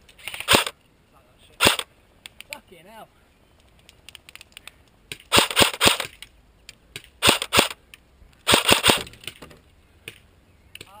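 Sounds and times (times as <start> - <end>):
airsoft rifle firing bursts: 0.4 - 0.7, 1.6 - 1.9, 5.3 - 6.1, 7.2 - 7.8, 8.4 - 9.2.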